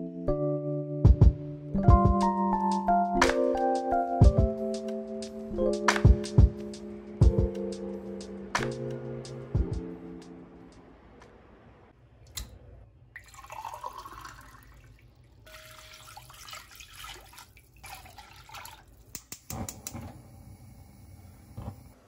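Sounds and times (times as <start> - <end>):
water running and splashing: 13.3 - 19.1.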